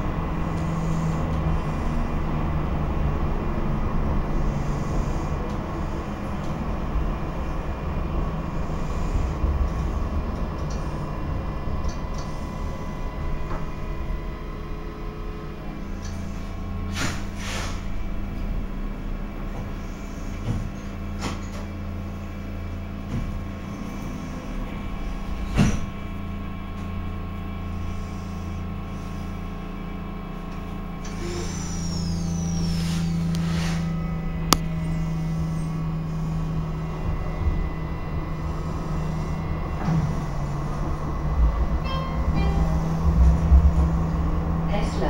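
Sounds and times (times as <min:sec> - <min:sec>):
tram equipment hum: 0:00.0 - 0:45.0
high gliding tone: 0:39.1 - 0:45.0.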